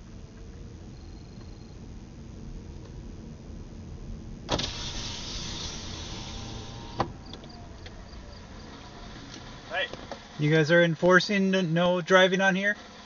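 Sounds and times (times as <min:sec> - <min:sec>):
car road rumble: 0:00.0 - 0:13.0
car power window winding down: 0:04.5 - 0:10.3.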